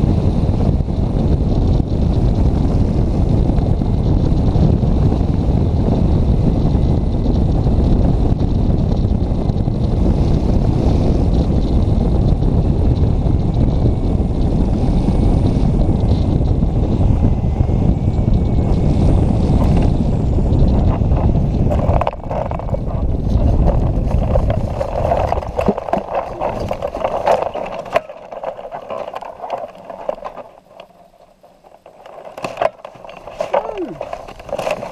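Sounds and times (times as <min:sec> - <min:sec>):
wind buffeting microphone: 0:00.0 - 0:34.9.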